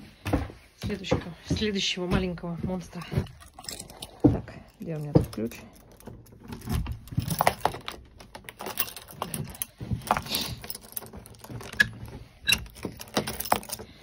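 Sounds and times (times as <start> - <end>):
keys jangling against lock: 5.0 - 14.0.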